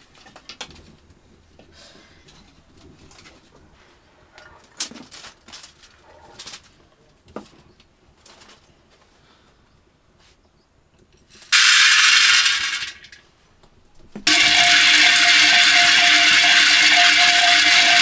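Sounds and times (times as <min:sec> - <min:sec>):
grains stirred with sticks: 0:11.5 - 0:13.1, 0:14.3 - 0:18.0
dry grains poured into pot: 0:11.5 - 0:13.2, 0:14.3 - 0:18.0.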